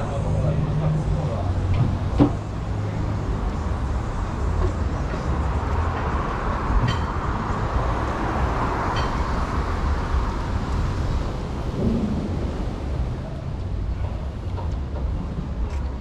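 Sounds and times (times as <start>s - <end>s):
road traffic rumble: 0.0s - 16.0s
vehicle whooshing by: 11.5s - 13.8s.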